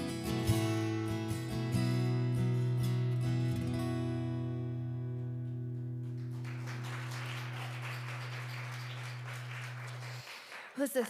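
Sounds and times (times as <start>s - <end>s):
acoustic guitar chord ringing: 0.0s - 6.1s.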